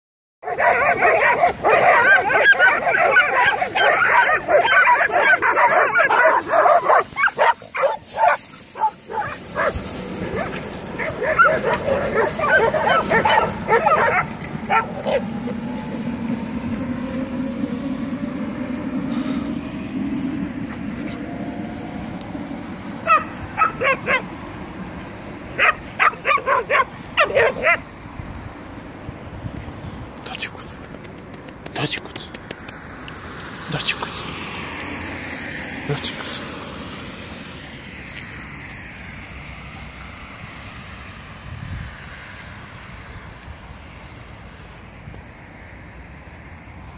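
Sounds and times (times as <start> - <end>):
dogs barking and yelping: 0.4 - 27.9.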